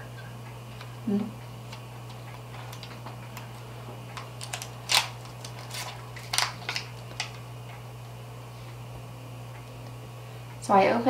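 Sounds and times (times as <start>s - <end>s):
steady low hum: 0.0s - 11.0s
plastic packaging crinkling: 1.7s - 7.5s.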